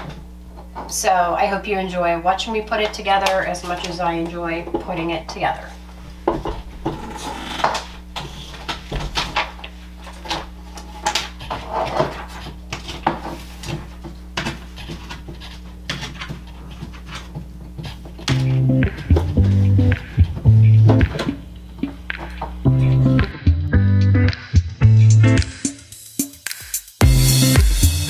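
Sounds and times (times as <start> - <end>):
paper rustling and crinkling: 7.8 - 18.3
background music: 18.3 - 28.0.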